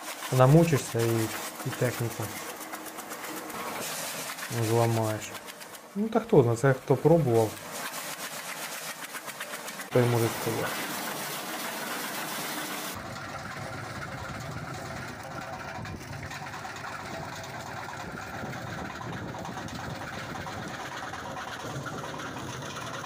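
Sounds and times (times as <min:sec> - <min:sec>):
branch chipper running: 0:00.0 - 0:23.0
tractor engine: 0:00.0 - 0:23.0.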